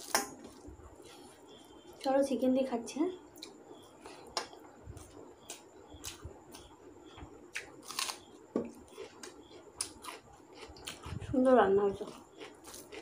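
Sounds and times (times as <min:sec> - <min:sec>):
person chewing: 0:03.4 - 0:11.4, 0:12.0 - 0:13.0.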